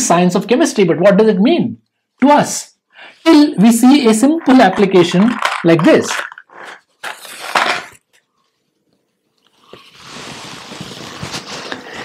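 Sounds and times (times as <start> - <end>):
match flame hissing: 9.9 - 12.0.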